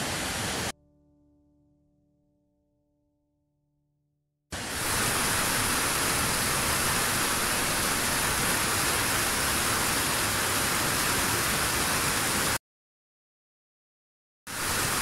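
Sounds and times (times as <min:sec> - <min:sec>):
waterfall rushing: 0:00.0 - 0:00.7, 0:04.6 - 0:12.6, 0:14.5 - 0:15.0.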